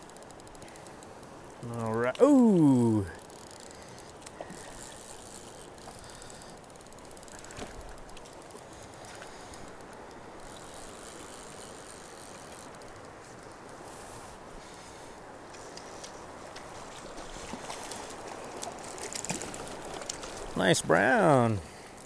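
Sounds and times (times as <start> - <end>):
fly reel clicker ticking: 0.0 - 2.2, 3.2 - 8.6
river current rushing: 0.1 - 22.0.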